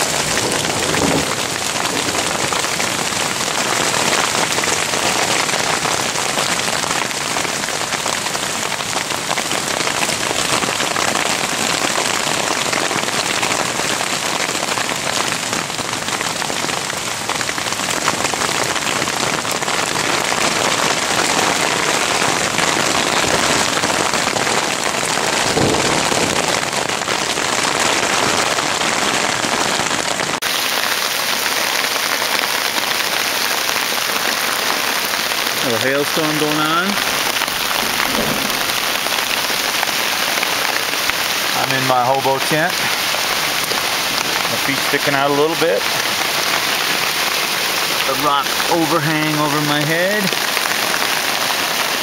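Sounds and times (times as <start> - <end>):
hail falling on leaves and ground: 0.0 - 52.0.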